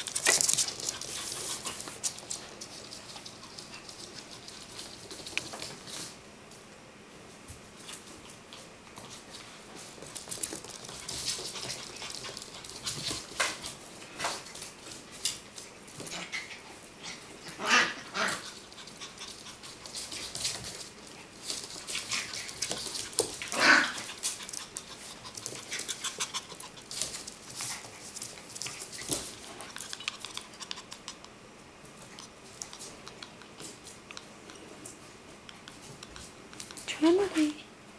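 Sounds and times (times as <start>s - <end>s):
paws scuffling on hardwood floor: 0.0s - 6.6s, 7.2s - 31.2s, 31.8s - 37.5s
puppies panting: 18.5s - 31.4s.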